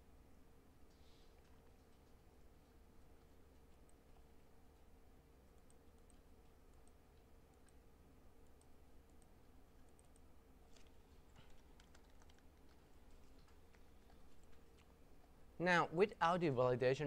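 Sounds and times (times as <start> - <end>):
faint steady hum: 0.0 - 17.0
computer keyboard and mouse clicks: 5.6 - 7.8, 8.4 - 14.9.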